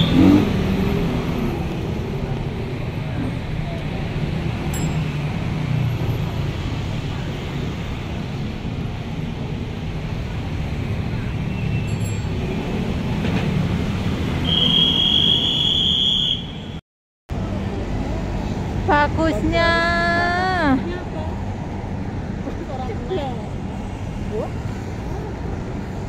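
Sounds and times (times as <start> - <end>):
traffic rumble: 0.0 - 26.0
high steady squeal: 14.4 - 16.8.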